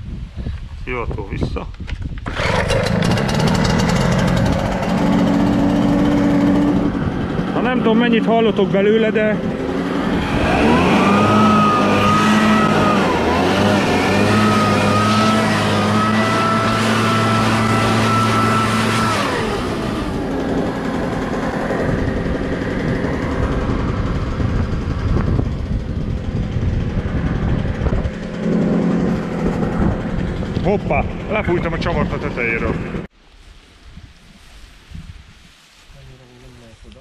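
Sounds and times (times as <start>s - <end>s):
two-stroke engine whining: 2.2s - 33.1s
rush of air: 9.4s - 31.3s.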